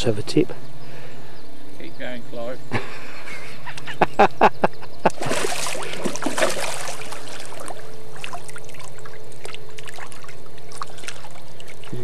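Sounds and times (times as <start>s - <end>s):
water splashing: 5.1s - 12.0s.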